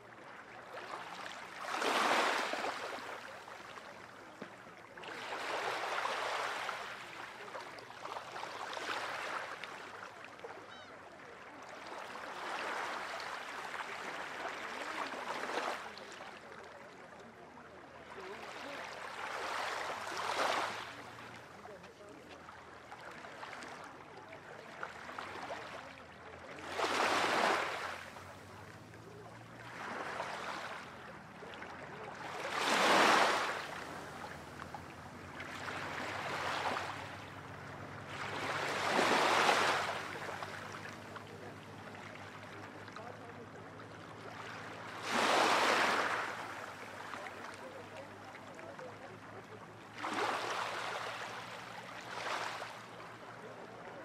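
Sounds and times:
small waves washing onto shore: 0:00.0 - 0:54.0.

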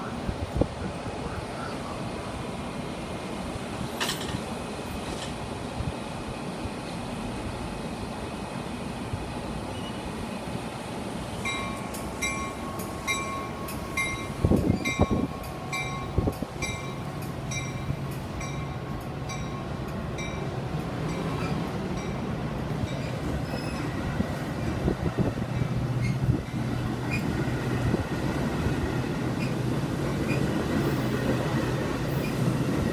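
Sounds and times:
low rumble of train: 0:00.0 - 0:32.9
train bell ringing: 0:11.4 - 0:23.9.

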